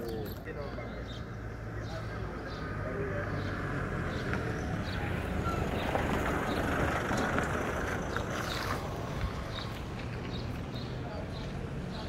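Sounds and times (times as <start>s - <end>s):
passing traffic rumble: 0.0s - 12.0s.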